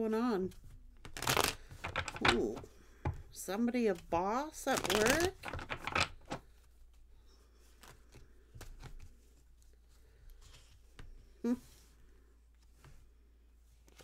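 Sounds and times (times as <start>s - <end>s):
cards rustling and tapping: 0.5s - 11.3s.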